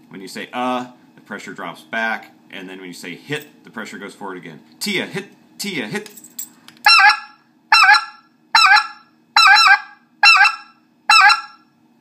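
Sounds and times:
goose call yelps: 0:06.9 - 0:11.6.

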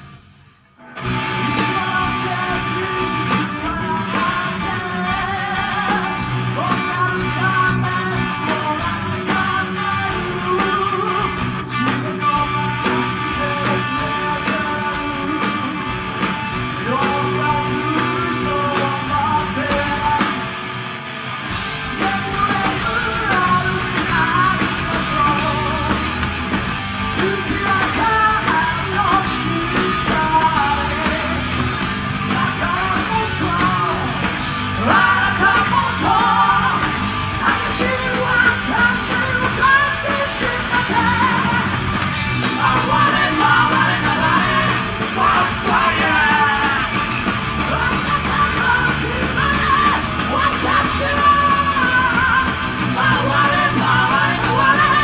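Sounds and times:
bass guitar: 0:00.0 - 0:55.0
drums: 0:00.0 - 0:55.0
electric guitar: 0:00.0 - 0:55.0
man singing and yelling: 0:01.1 - 0:20.6, 0:21.8 - 0:55.0.

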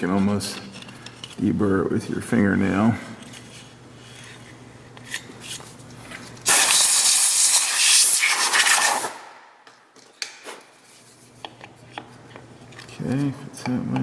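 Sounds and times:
compressed air blow gun hissing: 0:06.5 - 0:09.1.

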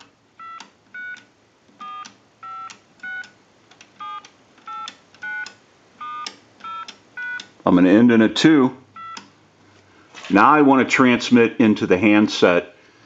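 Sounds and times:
keypad dial tone beeps: 0:00.4 - 0:03.4, 0:04.0 - 0:07.5, 0:08.9 - 0:09.3.

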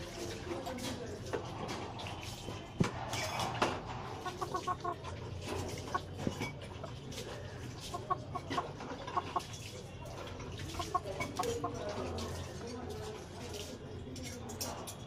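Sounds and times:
rooster clucking: 0:04.0 - 0:12.4.

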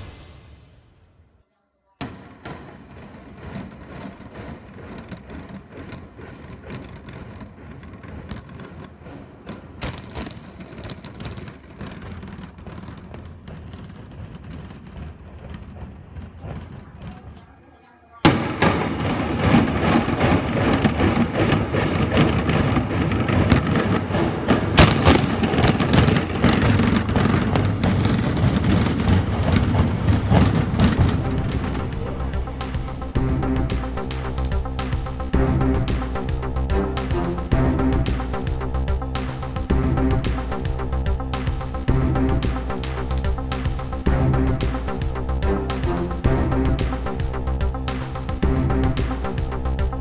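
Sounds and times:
background noise: 0:00.0 - 0:50.0
sharp crack of charges: 0:18.2 - 0:38.5
building collapsing rumble: 0:18.3 - 0:50.0.

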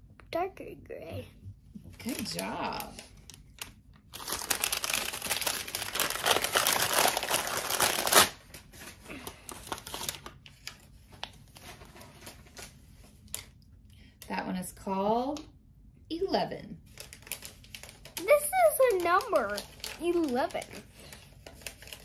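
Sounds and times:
wrapping crinkling and tearing: 0:02.0 - 0:13.6, 0:16.8 - 0:22.0
light rustles and crinkles: 0:08.4 - 0:13.6, 0:16.8 - 0:22.0.

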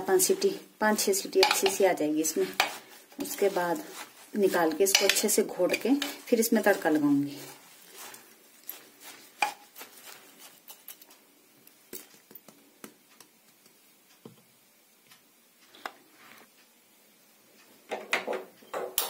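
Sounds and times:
spoon stirring wet greens: 0:00.2 - 0:13.8
spoon knocking against pot: 0:01.4 - 0:01.8, 0:04.8 - 0:05.3.

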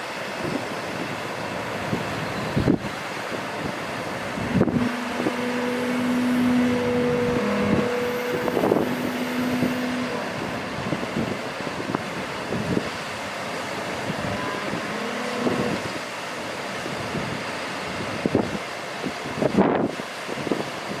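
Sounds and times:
wind noise on microphone: 0:00.0 - 0:21.0
hydraulic hum: 0:00.1 - 0:18.6.

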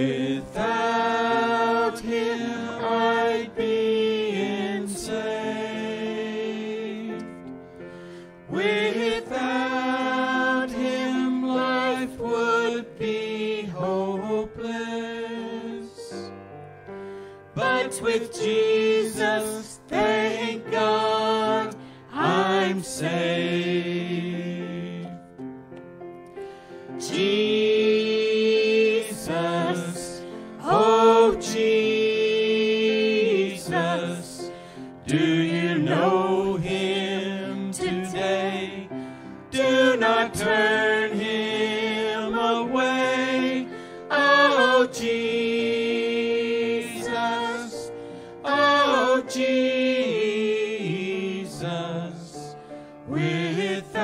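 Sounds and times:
group singing gospel hymn: 0:00.0 - 0:16.4, 0:17.5 - 0:25.4, 0:26.5 - 0:54.0.

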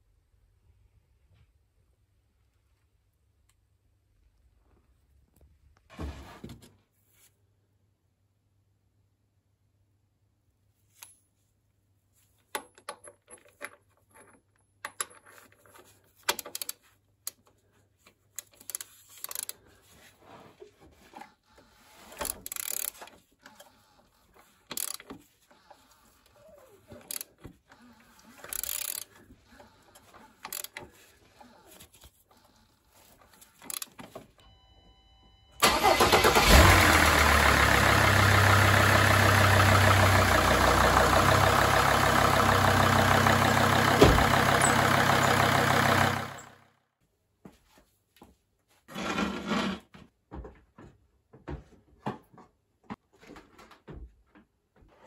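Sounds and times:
socket wrench clicks and scrapes: 0:18.4 - 0:19.6, 0:28.4 - 0:29.1
diesel engine running: 0:35.6 - 0:46.6.

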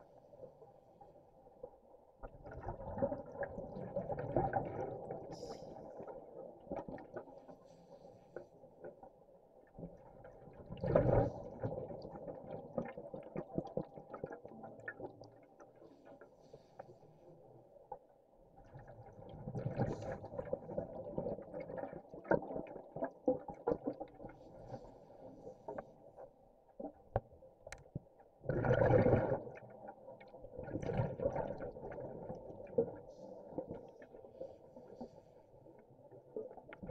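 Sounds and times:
exhaled scuba bubbles underwater: 0:00.0 - 0:36.9
small underwater clicks and crackles: 0:00.0 - 0:36.9.

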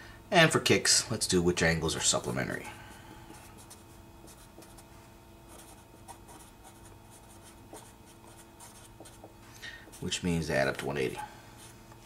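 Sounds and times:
low steady hum: 0:00.0 - 0:12.0
marker writing on paper: 0:03.4 - 0:04.8, 0:05.5 - 0:10.1.

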